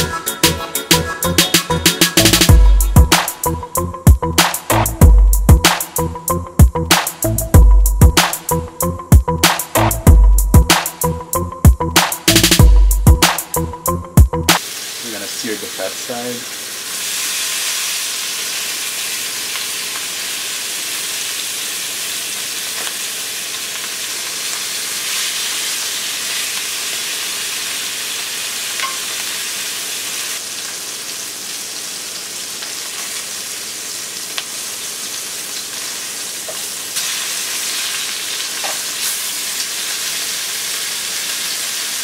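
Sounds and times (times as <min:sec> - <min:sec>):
meat sizzling in hot oil: 0:14.6 - 0:42.0
tongs clicking: 0:28.8 - 0:29.1.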